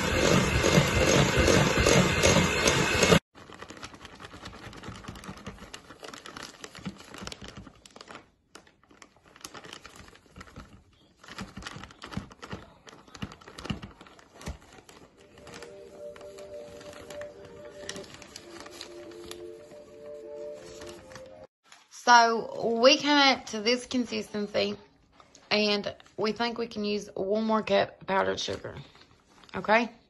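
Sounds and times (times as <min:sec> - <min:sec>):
electric hand mixer running: 0:00.0 - 0:03.2
plastic bag crinkling: 0:03.4 - 0:21.5.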